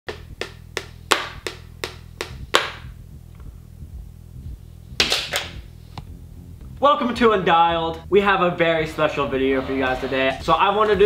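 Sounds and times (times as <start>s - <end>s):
sharp hand claps: 0.1s - 2.9s.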